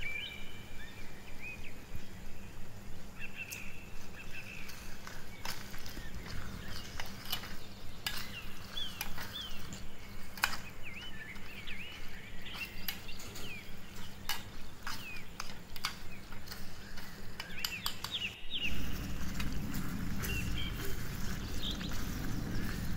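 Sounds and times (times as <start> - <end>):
birds chirping: 0.0 - 22.9
low hum: 18.4 - 22.9.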